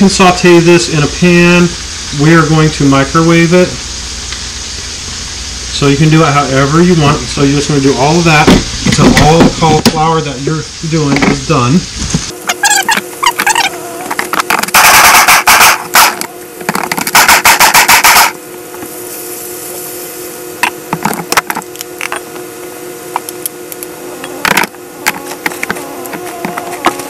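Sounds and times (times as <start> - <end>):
food processor motor pulses: 23.1 - 27.0.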